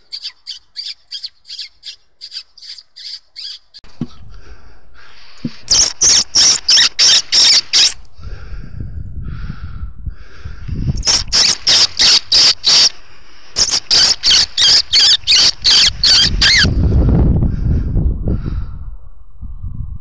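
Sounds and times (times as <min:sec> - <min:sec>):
sharp high-pitched calls: 0:00.0 - 0:03.8, 0:05.7 - 0:08.0, 0:11.0 - 0:13.0, 0:13.6 - 0:16.8.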